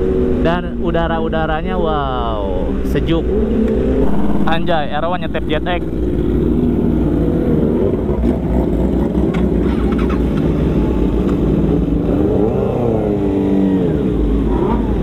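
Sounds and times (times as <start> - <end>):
motorcycle engines running: 0.0 - 15.0
motorcycle engine revving: 3.2 - 15.0.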